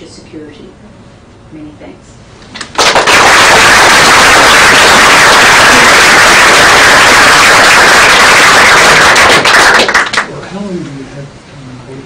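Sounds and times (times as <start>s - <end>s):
audience applause: 2.7s - 10.3s.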